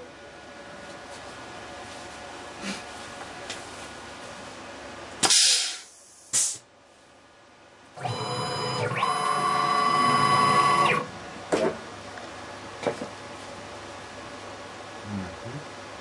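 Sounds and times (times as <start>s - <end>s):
lathe motors whining: 8.0s - 11.1s.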